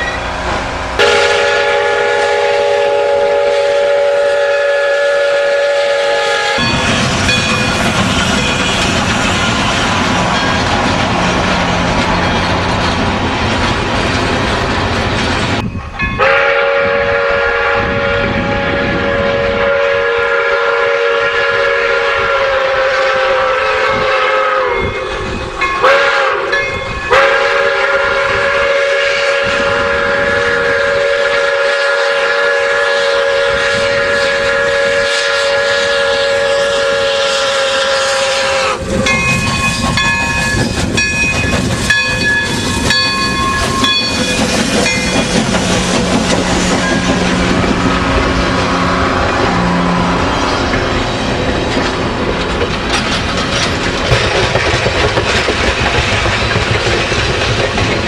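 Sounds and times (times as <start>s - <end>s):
steam whistle blasts: 1.0s - 6.8s, 16.2s - 25.2s, 25.8s - 40.4s
locomotive rods clanking: 6.6s - 16.2s, 50.6s - 58.0s
steam hissing: 27.2s - 52.2s.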